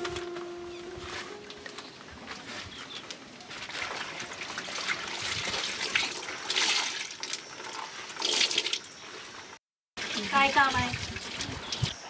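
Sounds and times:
water splashing and pouring: 0:03.4 - 0:12.0.

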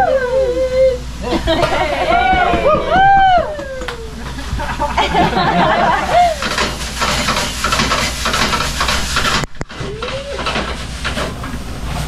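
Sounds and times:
metal spatula scraping a pan: 0:06.4 - 0:09.4.

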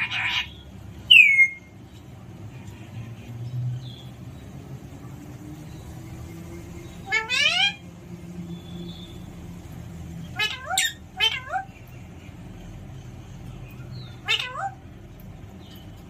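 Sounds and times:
parrot imitating cat meow: 0:07.1 - 0:07.8, 0:10.3 - 0:11.7, 0:14.2 - 0:14.8.

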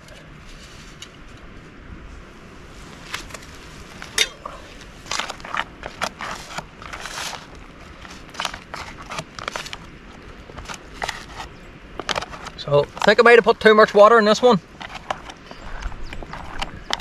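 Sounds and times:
foil pouch crinkling: 0:03.1 - 0:13.3.

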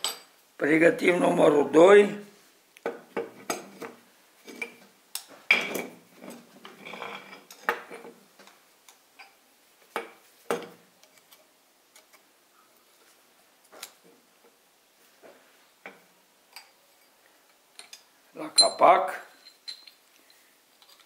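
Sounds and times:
metallic clinks and knocks: 0:17.8 - 0:21.0.

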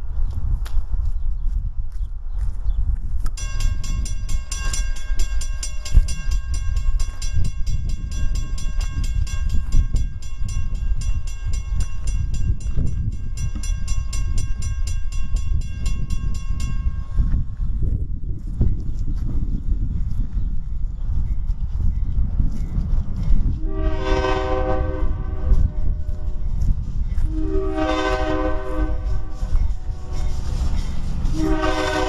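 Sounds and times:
diesel locomotive rumbling: 0:02.1 - 0:32.0
locomotive bell ringing rapidly: 0:03.4 - 0:17.4.

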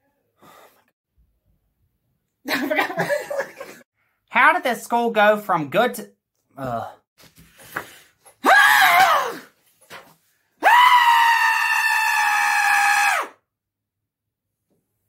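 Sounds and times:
man screaming: 0:08.4 - 0:09.4, 0:10.6 - 0:13.3.

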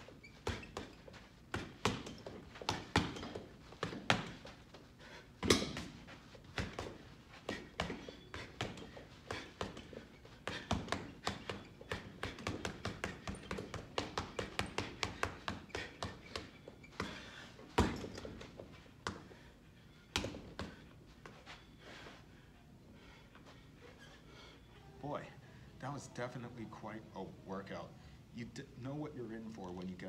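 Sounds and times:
gloves punching heavy bag: 0:00.2 - 0:04.6, 0:05.4 - 0:19.2.

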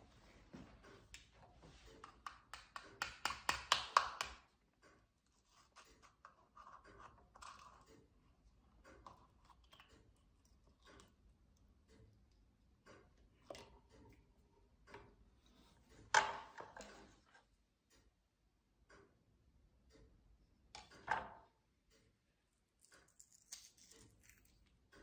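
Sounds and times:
knife tapping egg shell: 0:02.0 - 0:04.4.

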